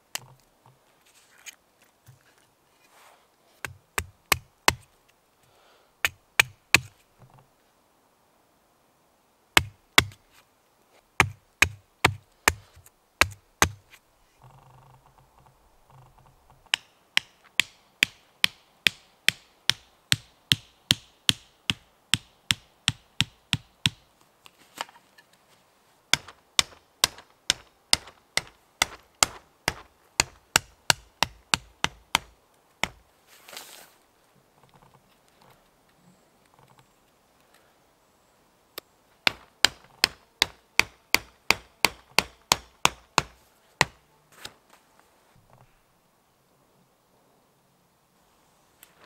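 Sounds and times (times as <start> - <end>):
hatchet knocking wooden stakes: 3.6 - 4.9, 6.0 - 6.9, 9.6 - 10.2, 11.2 - 13.9, 16.7 - 24.0, 26.1 - 33.0, 39.2 - 44.0.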